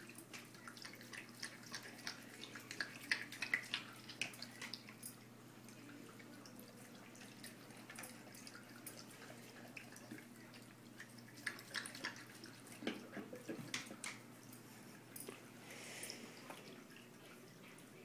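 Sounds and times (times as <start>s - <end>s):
dog lapping water: 0.0s - 5.2s, 5.8s - 14.4s.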